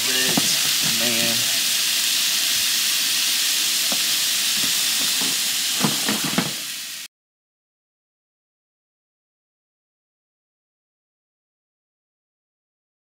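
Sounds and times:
meat sizzling in a frying pan: 0.0s - 7.1s.

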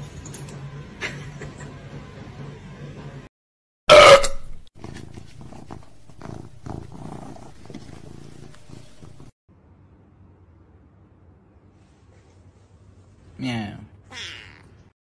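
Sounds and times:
cat purring: 4.8s - 9.3s.

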